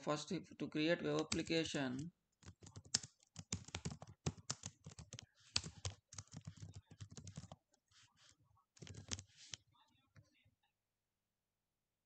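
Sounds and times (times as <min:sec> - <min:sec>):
keyboard typing clicks: 0:01.1 - 0:01.5, 0:02.4 - 0:07.6, 0:08.8 - 0:09.6.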